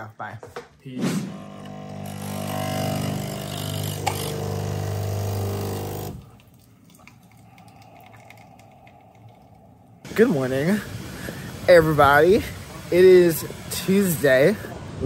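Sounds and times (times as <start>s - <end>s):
coffee machine pump buzzing: 1.3s - 6.4s
coffee dribbling from spout: 3.2s - 10.1s.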